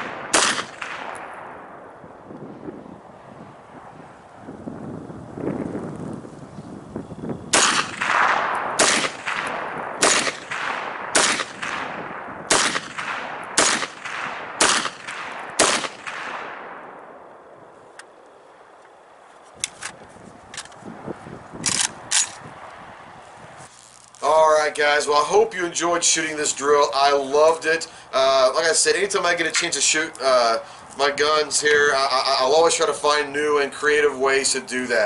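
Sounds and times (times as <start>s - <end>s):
rifle shots with echo: 0.0s - 2.1s, 7.5s - 17.7s.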